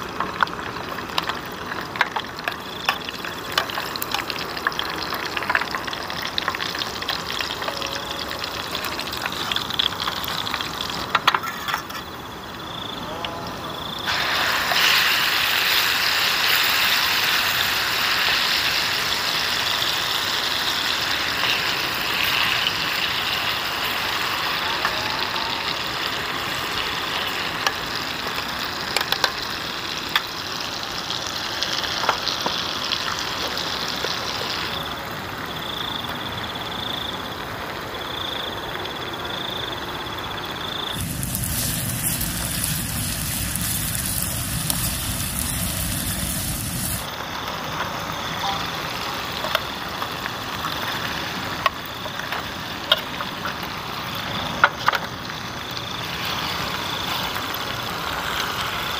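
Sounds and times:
food sizzling in a pan: 0.0s - 13.0s, 13.7s - 35.9s, 40.1s - 47.5s, 48.1s - 58.9s
gas burner hissing: 13.8s - 30.2s, 40.9s - 47.6s.

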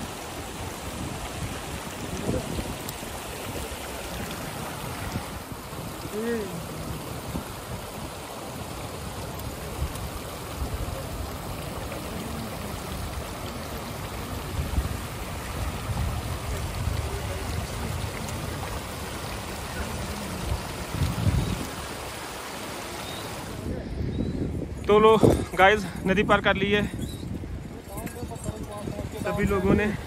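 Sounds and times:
stream rushing over stones: 0.0s - 30.0s.

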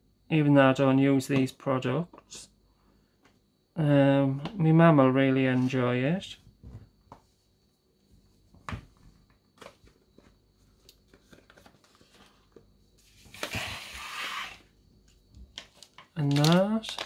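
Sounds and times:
plastic crinkling: 15.5s - 17.0s.

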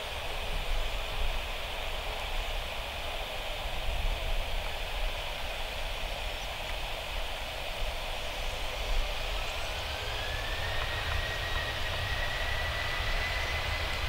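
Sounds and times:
jet engines taxiing: 0.0s - 14.0s
rising engine whine: 8.0s - 14.0s.

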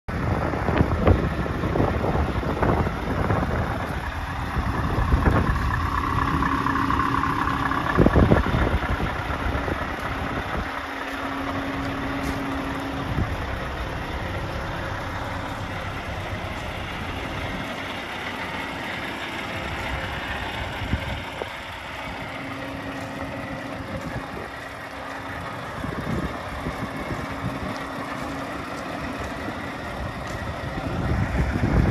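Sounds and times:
truck diesel engine running: 0.1s - 31.9s.

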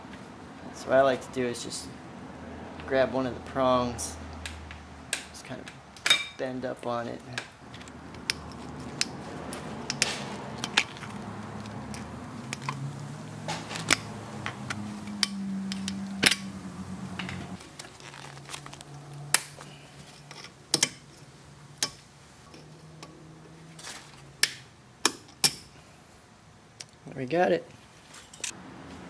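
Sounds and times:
sharp metallic clicks and taps: 7.3s - 12.8s.

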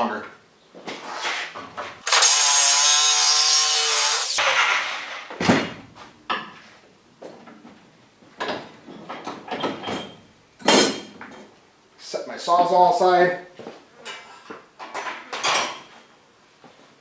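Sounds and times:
power tool cutting steel pipe: 2.0s - 4.5s.

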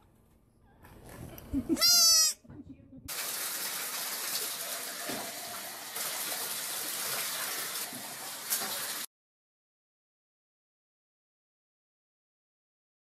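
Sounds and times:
water running in bathtub: 3.1s - 9.1s.

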